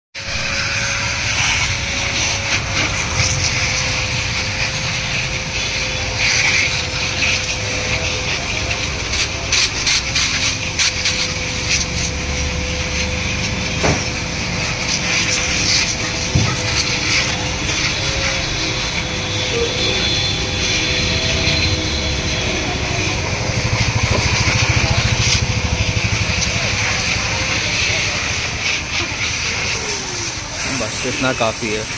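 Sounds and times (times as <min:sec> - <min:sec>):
steady machine hum: 0:00.2 - 0:31.9
water spray hissing: 0:00.2 - 0:31.9.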